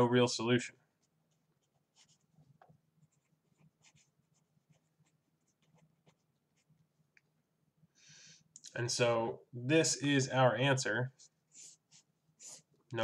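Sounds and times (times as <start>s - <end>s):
pen scratching on paper: 1.3s - 6.7s, 11.2s - 12.7s.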